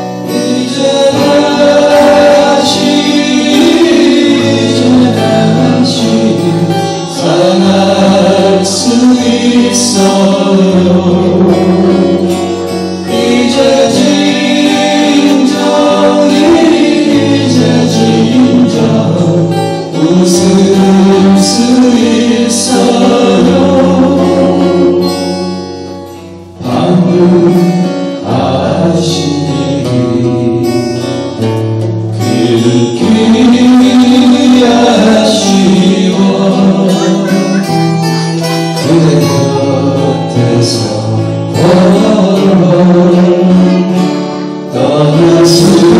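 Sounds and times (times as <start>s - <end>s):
men singing together: 0.0s - 25.3s, 26.6s - 45.9s
acoustic guitars strummed: 0.0s - 45.9s.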